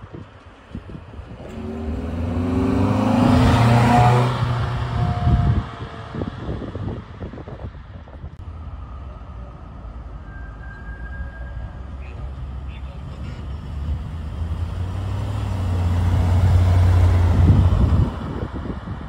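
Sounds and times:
car accelerating past: 1.3s - 7.0s, 13.5s - 19.0s.

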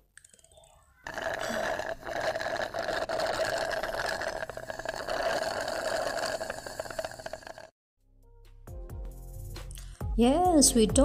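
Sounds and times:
slurping through a straw: 0.4s - 7.8s.

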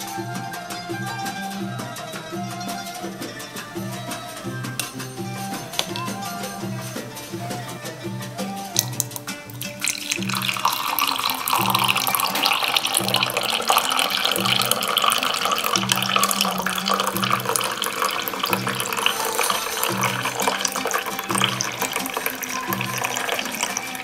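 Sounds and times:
background music with a beat: 0.0s - 24.0s
milk pouring into a glass: 5.7s - 6.2s, 8.8s - 24.0s.

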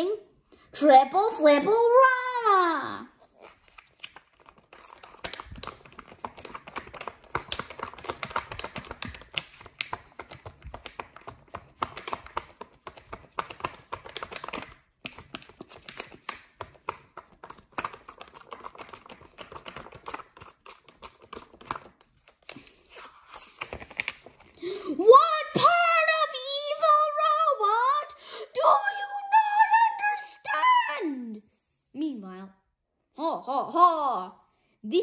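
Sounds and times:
book page flapping: 3.3s - 24.6s.

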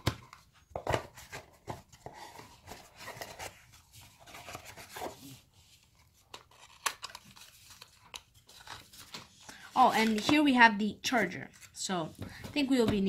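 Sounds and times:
cardboard scraping and rustling: 0.8s - 5.5s.

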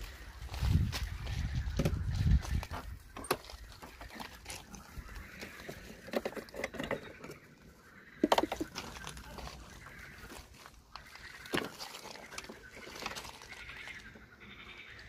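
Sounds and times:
plastic clicks and knocks: 8.2s - 8.9s.

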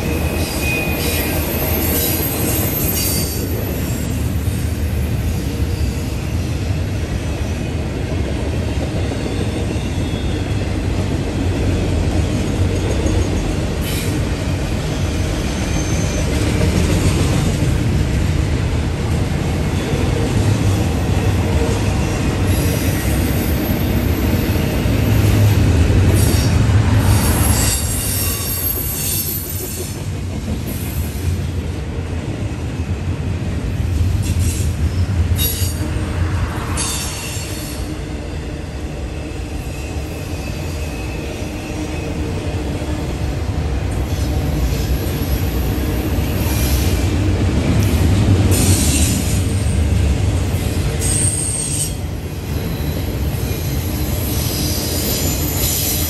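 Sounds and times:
high wheel squeal: 0.0s - 4.2s, 14.9s - 16.4s, 27.2s - 29.9s, 50.6s - 56.0s
freight train wheels rumbling: 0.0s - 56.0s.

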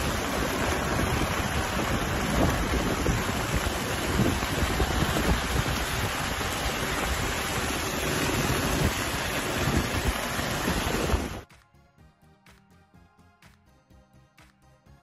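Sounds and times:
wind buffeting open window: 0.0s - 11.4s
vehicle road noise on dirt road: 0.0s - 11.5s
faint background music with beat: 11.4s - 15.0s.

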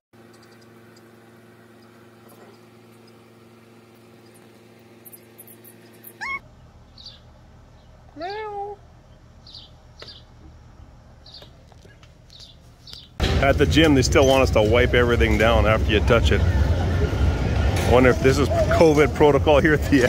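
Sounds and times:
kitten meowing: 6.1s - 6.4s.

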